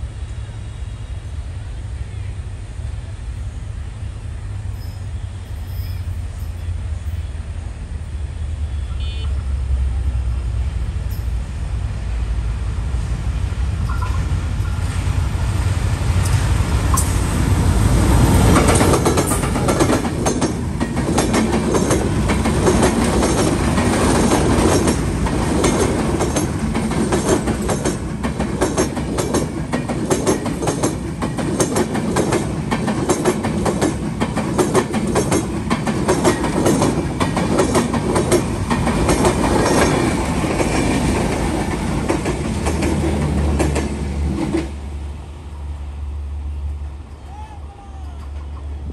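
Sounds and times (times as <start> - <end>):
diesel locomotive rumble: 0.0 - 48.9
train wheels clickety-clack: 13.7 - 44.9.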